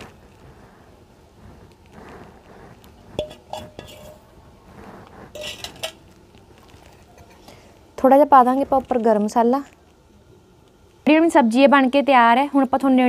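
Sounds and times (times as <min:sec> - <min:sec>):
steel bowls and utensils clinking: 0:03.2 - 0:04.4, 0:05.3 - 0:06.2.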